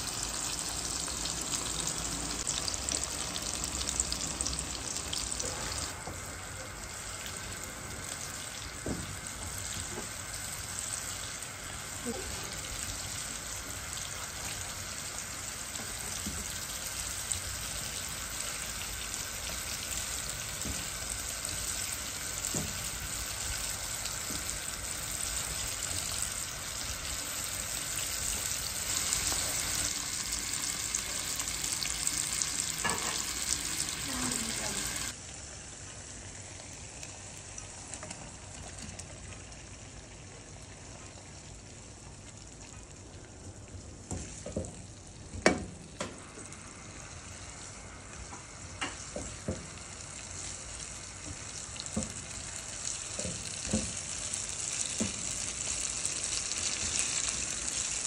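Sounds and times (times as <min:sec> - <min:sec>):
food sizzling in oil: 0:00.0 - 0:58.0.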